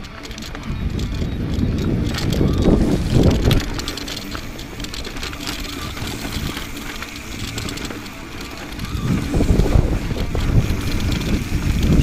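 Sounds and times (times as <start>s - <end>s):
bike chain rattling: 0.0s - 12.0s
tyres crunching over rock: 0.0s - 12.0s
wind buffeting microphone: 0.0s - 12.0s.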